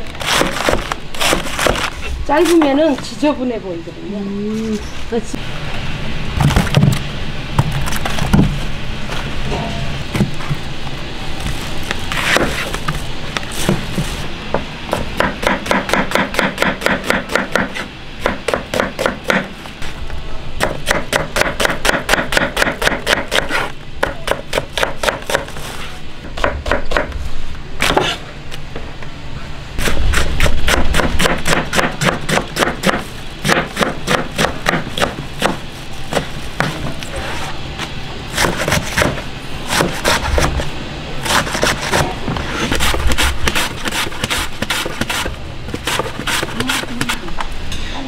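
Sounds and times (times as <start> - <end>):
knife slicing onions on board: 0.2 - 2.9, 20.6 - 25.8, 27.8 - 28.2, 29.8 - 37.5, 38.3 - 40.6, 41.2 - 47.4.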